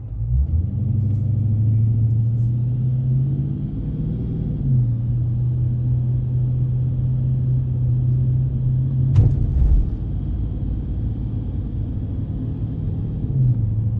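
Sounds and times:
car engine hum and road rumble: 0.0 - 13.9
low thump: 9.1 - 10.4.

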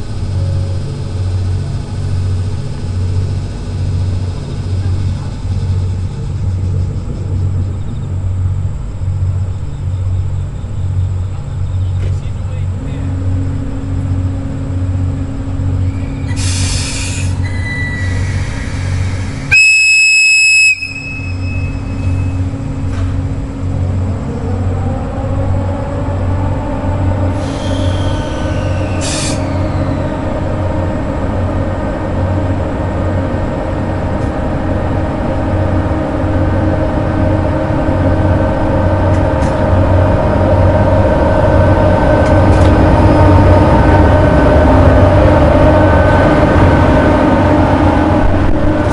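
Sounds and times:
locomotive motors humming: 0.0 - 48.9
locomotive whistle blast: 15.9 - 22.5, 27.4 - 30.0.

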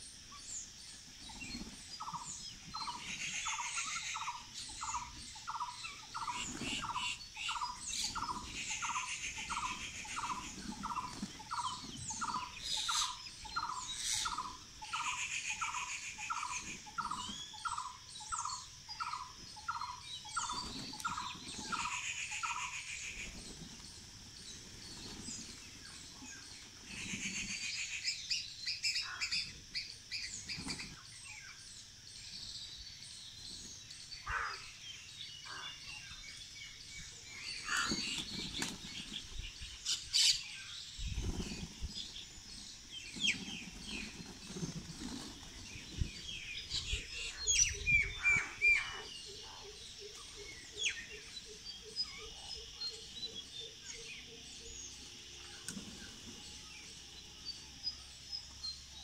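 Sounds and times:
birds chirping and calling: 0.0 - 59.0
pigeon wings fluttering: 41.1 - 42.0.

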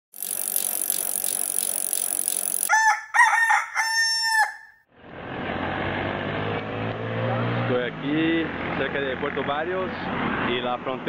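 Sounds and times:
rooster crowing: 2.7 - 4.8.

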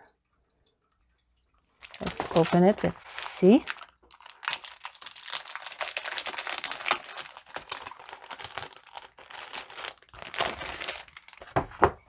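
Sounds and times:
plastic bag crinkling: 1.8 - 11.9.

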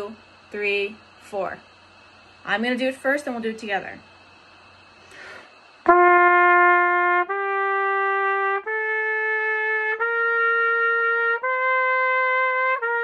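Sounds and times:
trumpet playing rising notes: 5.9 - 13.0.

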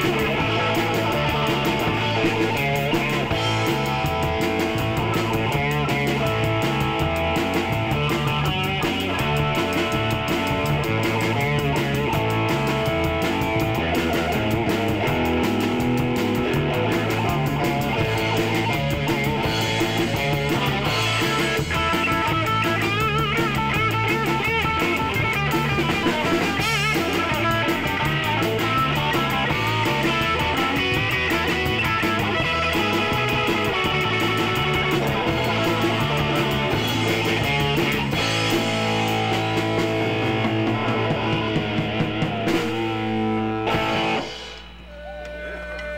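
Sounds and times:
drum kit: 0.0 - 45.2
electric bass: 0.0 - 45.9
electric guitar: 0.0 - 45.9.

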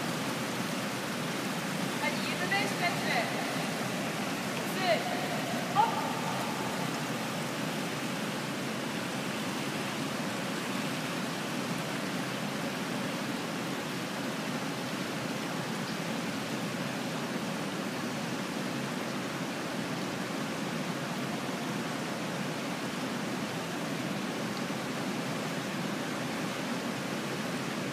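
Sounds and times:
swimming pool hall rushing noise: 1.9 - 8.2.

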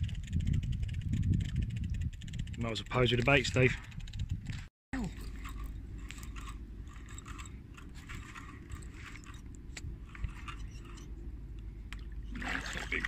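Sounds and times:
fishing reel ticking: 5.2 - 11.1.

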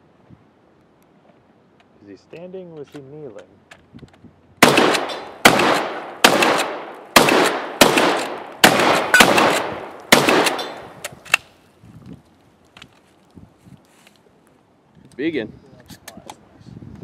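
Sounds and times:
shotgun shots: 4.6 - 11.0.

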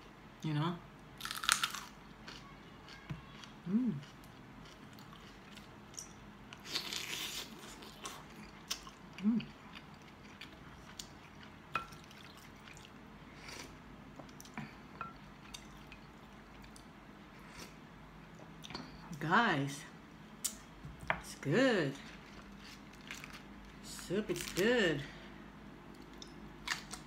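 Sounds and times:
person humming: 3.7 - 4.0, 9.2 - 9.5.

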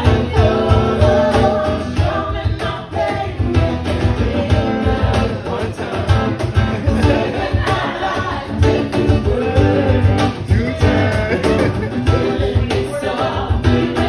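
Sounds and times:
cajon beat: 0.0 - 14.0
strummed guitar: 0.0 - 14.0
person singing: 6.8 - 14.0.

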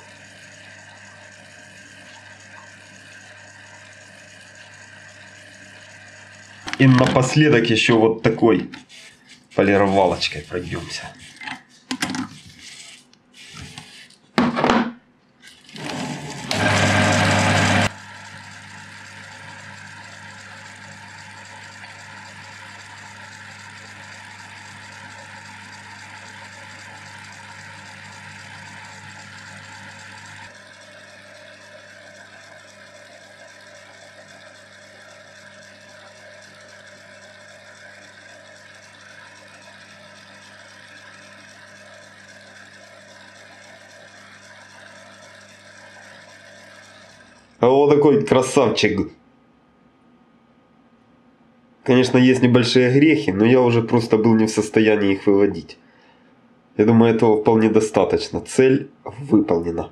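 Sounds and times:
small lathe humming: 0.0 - 14.2, 15.6 - 48.8
metal rubbing on buffing wheel: 8.7 - 14.2.

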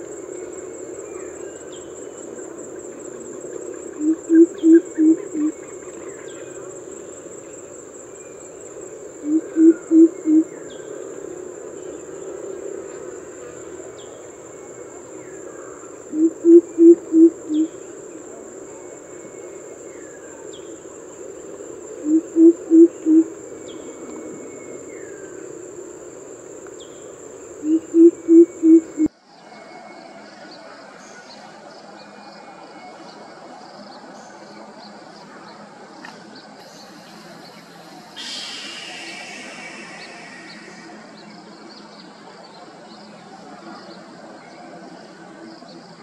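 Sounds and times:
high insect drone: 0.0 - 46.0
coucal low hooting call: 3.9 - 5.7, 9.2 - 11.2, 14.3 - 20.4, 21.9 - 29.1.

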